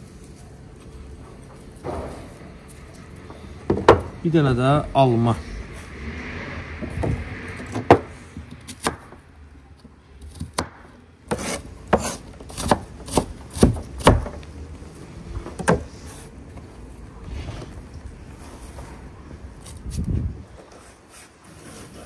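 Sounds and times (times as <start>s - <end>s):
knife chopping on cutting board: 10.5s - 14.3s.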